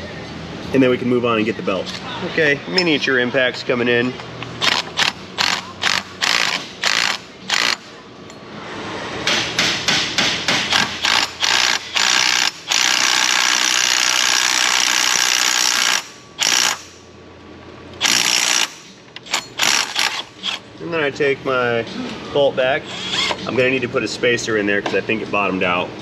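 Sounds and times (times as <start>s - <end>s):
cordless impact gun hammering: 9.3s - 16.9s.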